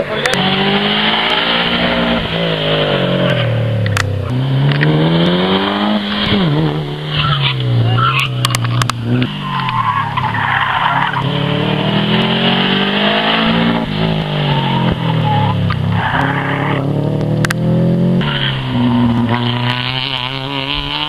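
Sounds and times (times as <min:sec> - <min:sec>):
rally car engine revving: 0:00.0 - 0:21.0
tyres squealing: 0:07.1 - 0:11.4.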